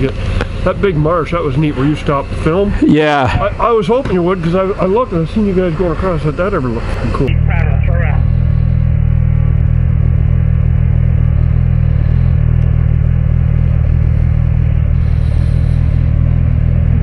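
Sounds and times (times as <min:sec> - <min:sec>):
vehicle engine idling: 0:00.0 - 0:17.0.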